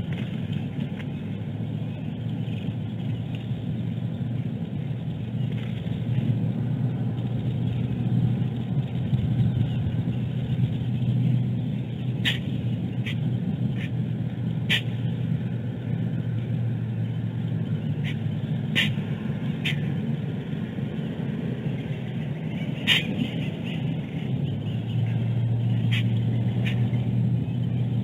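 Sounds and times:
steady low rumble: 0:00.0 - 0:28.0.

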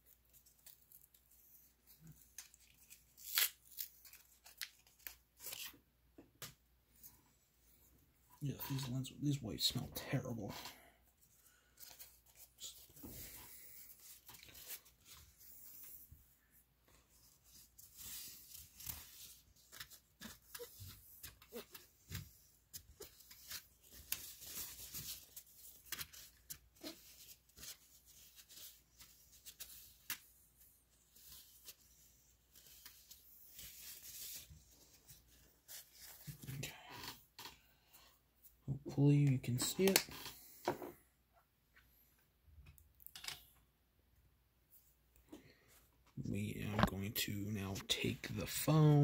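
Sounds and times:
small clicks of objects handled: 0:42.6 - 0:43.6.

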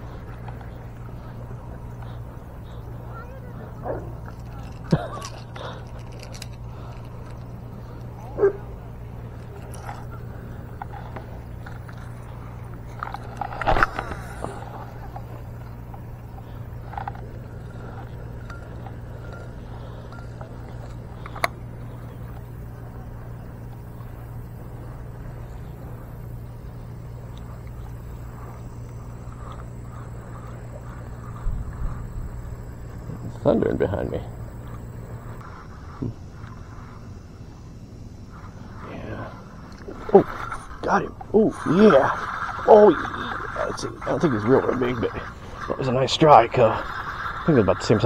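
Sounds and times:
low hum: 0:00.0 - 0:48.0
dog barking: 0:08.4 - 0:08.7.

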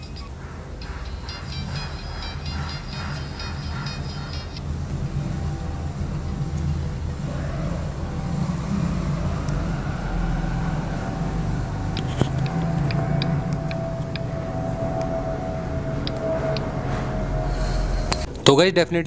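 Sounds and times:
muffled bass-heavy music: 0:00.0 - 0:18.3.

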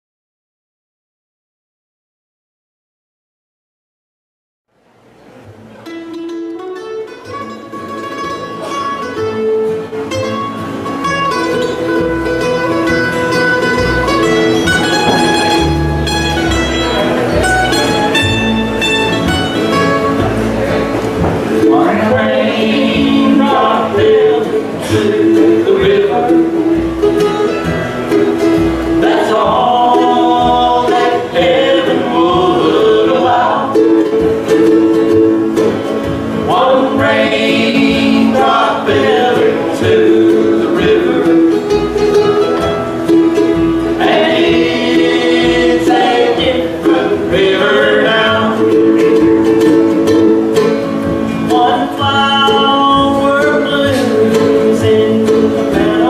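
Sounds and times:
acoustic guitar: 0:04.7 - 0:56.0
upright bass: 0:05.1 - 0:56.0
plucked strings: 0:05.2 - 0:56.0
person singing: 0:21.6 - 0:27.2, 0:29.0 - 0:35.2, 0:36.4 - 0:42.3, 0:43.9 - 0:50.4, 0:51.4 - 0:56.0.

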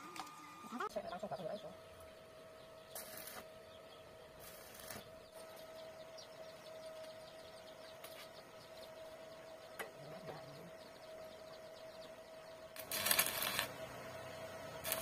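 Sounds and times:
chicks peeping: 0:05.3 - 0:12.2.

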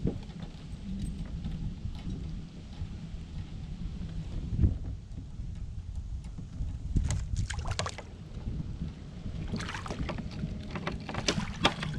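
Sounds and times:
wind rumbling on microphone: 0:00.0 - 0:11.9
water splashes: 0:07.4 - 0:08.1, 0:09.4 - 0:11.9.

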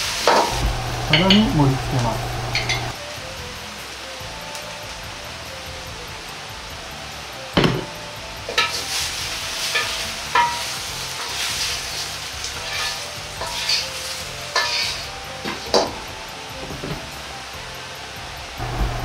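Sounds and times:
oil sizzling: 0:00.0 - 0:19.0
ladle scraping and clanking on wok: 0:08.5 - 0:15.9.

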